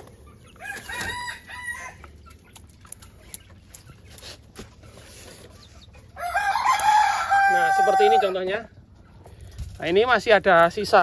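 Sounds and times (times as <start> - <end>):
rooster crowing: 0.6 - 2.0, 6.2 - 8.5.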